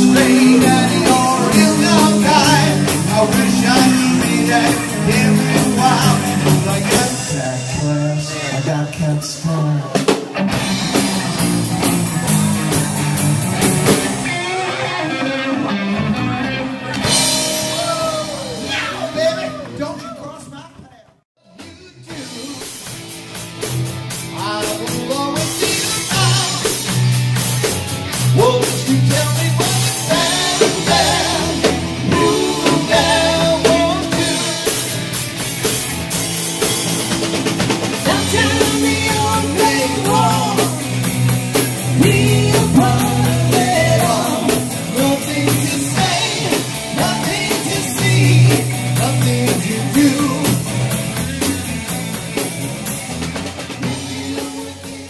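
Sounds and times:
man singing into microphone: 0.0 - 10.0, 24.4 - 26.8, 28.4 - 34.9, 38.0 - 41.0, 41.8 - 50.7
electric guitar: 0.0 - 19.8, 22.1 - 55.0
bass guitar: 0.0 - 55.0
drum kit: 0.0 - 55.0.

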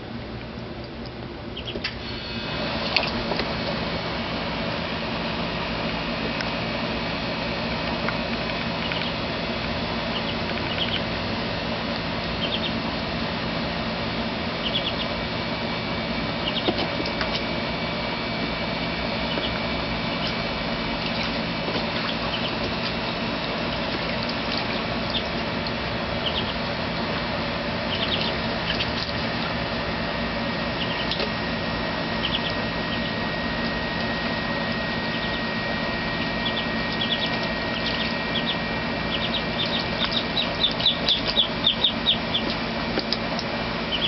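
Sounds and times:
ducklings peeping: 0.8 - 44.0
water splashing in a plastic tub: 18.8 - 35.7.

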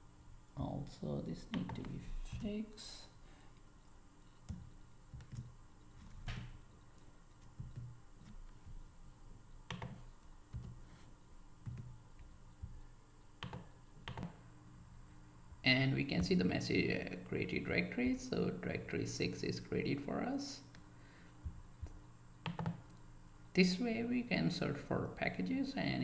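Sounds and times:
keyboard clicks: 1.5 - 2.4, 9.7 - 10.8, 13.4 - 14.4, 22.4 - 23.0.

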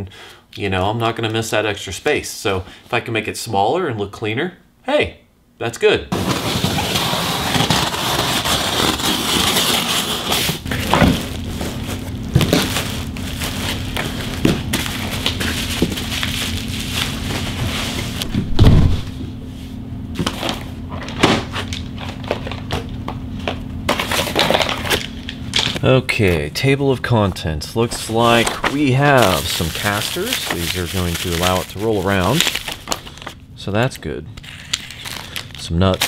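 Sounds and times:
cardboard and tape rustling: 6.1 - 18.9, 20.2 - 26.4, 27.8 - 33.4
bubble wrap and plastic crackling: 6.2 - 18.3, 27.8 - 33.4, 34.4 - 36.0
loud thump: 18.3 - 19.4.

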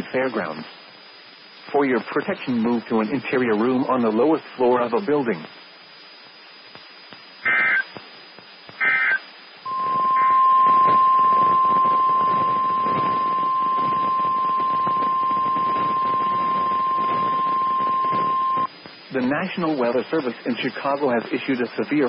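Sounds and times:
radio static: 0.0 - 22.0
digital data tone bursts: 7.4 - 7.9, 8.8 - 18.7
high-pitched alarm tone: 8.8 - 18.7.

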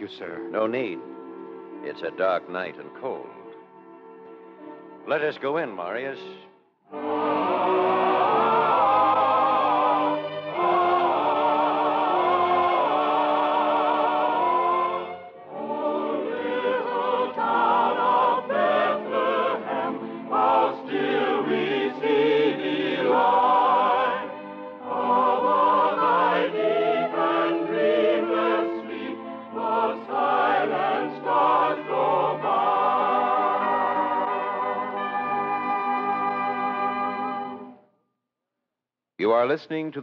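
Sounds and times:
choir singing with vibrato: 6.9 - 37.6.

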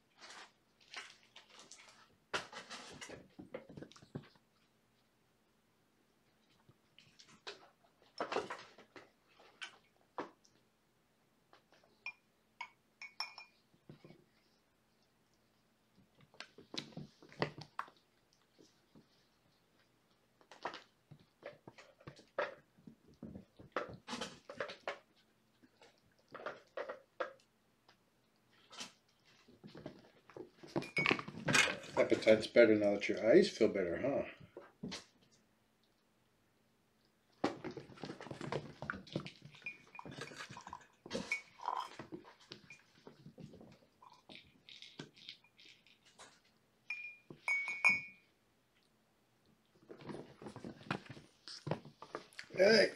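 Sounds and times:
light glass clinks: 12.0 - 13.6, 46.9 - 48.2
glass tumbler tipping over: 30.8 - 32.2.

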